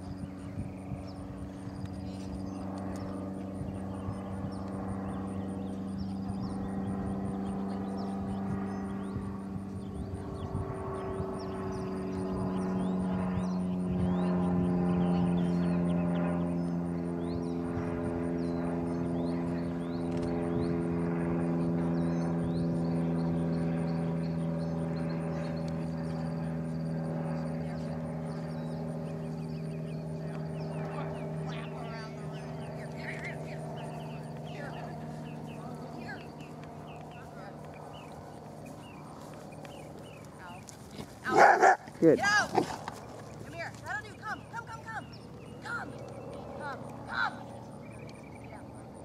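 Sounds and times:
low engine drone: 0:00.0 - 0:49.0
small birds chirping: 0:00.0 - 0:49.0.

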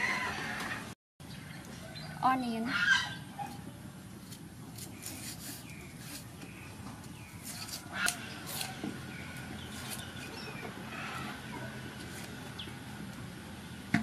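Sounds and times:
birds chirping: 0:01.2 - 0:13.9
knife cutting onion: 0:07.4 - 0:08.8.

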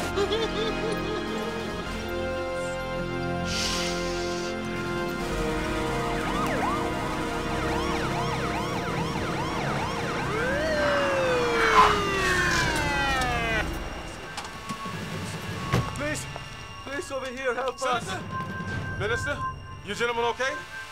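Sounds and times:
police siren yelping: 0:04.2 - 0:18.8.

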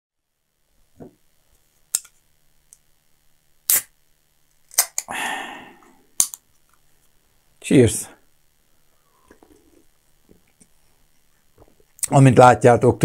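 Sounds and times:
can ring-pull popping open: 0:04.7 - 0:05.1.

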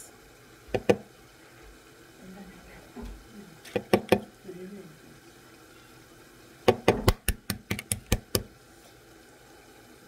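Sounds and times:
eggs tapped against hard edge: 0:00.7 - 0:01.1, 0:03.7 - 0:04.3, 0:06.7 - 0:08.5.

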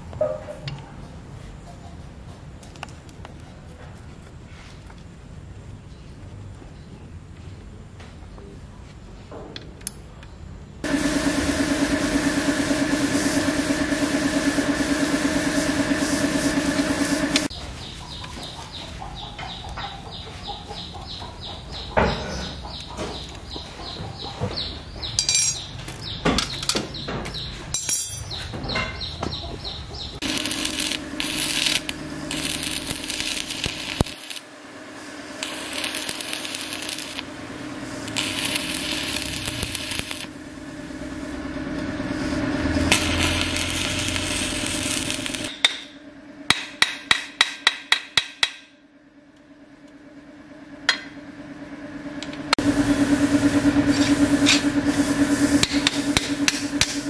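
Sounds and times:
crackling welding arc: 0:10.8 - 0:17.5, 0:30.2 - 0:41.3, 0:42.1 - 0:47.3
welder hum: 0:10.8 - 0:17.5, 0:30.0 - 0:48.7, 0:49.3 - 0:57.0
metal parts clinking: 0:25.2 - 0:25.7, 0:27.7 - 0:28.4
hammering on metal: 0:46.5 - 0:48.8.

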